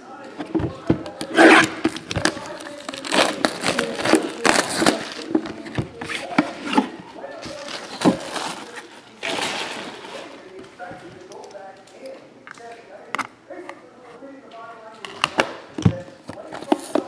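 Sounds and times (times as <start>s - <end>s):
plastic shrink wrap tearing: 1.1s - 6.3s, 7.4s - 10.4s.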